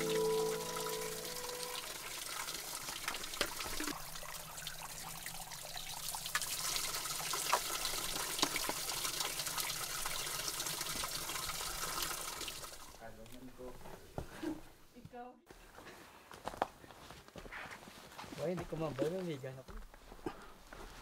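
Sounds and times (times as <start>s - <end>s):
water drips: 0.0s - 13.0s.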